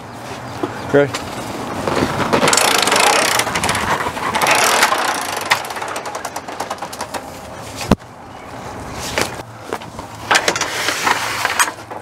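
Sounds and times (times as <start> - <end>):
metal clicks and rattles: 2.4 - 7.5.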